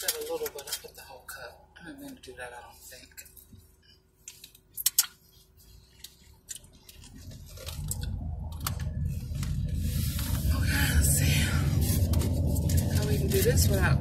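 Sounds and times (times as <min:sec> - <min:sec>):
paper wrapper crinkling: 0:00.0 - 0:01.0, 0:04.2 - 0:14.0
low car rumble: 0:05.8 - 0:14.0.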